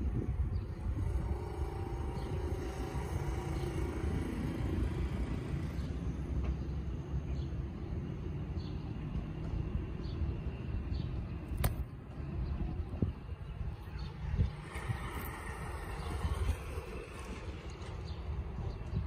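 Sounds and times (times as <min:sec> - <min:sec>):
sharp click: 0:11.5 - 0:11.9.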